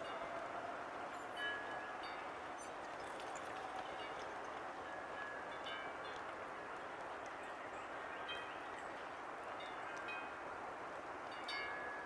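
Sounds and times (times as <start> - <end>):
faint outdoor hiss: 0.0 - 12.0.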